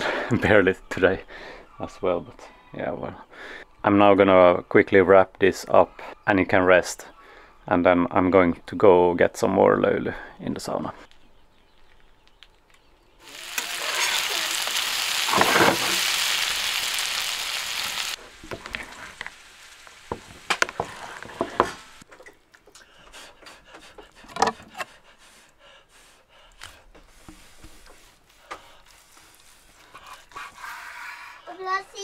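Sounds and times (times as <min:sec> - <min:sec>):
potatoes sizzling in a frying pan: 0:13.2 - 0:22.0.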